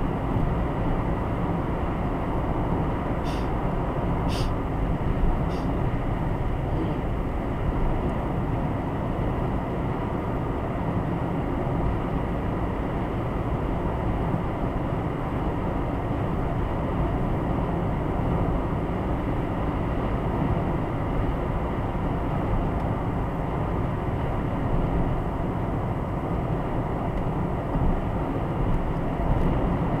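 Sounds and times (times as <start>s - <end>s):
engine drone: 0.0s - 30.0s.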